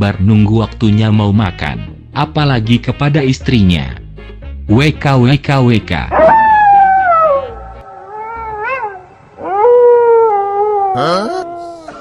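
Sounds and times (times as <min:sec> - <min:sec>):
animal wailing calls: 0:06.2 - 0:12.0.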